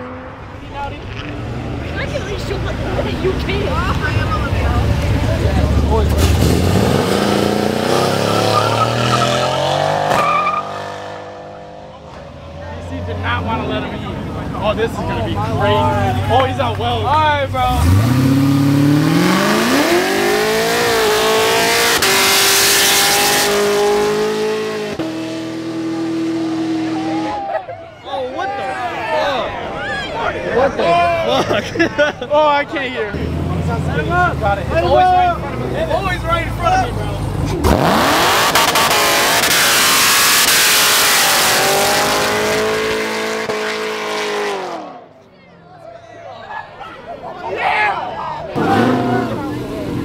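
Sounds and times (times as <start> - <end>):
car engine revving hard: 5.3 - 11.9, 17.6 - 27.4, 37.3 - 45.0, 48.6 - 50.0.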